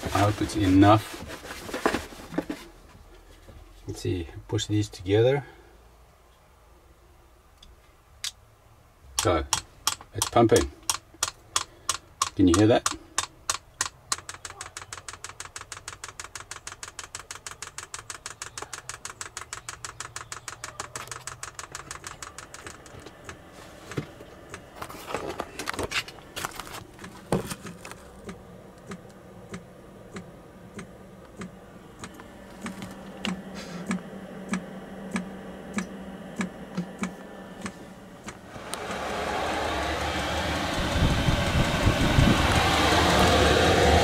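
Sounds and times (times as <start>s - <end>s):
low steady hum: 0.0s - 44.0s
fuel pump ticking: 9.2s - 24.7s, 27.0s - 43.8s.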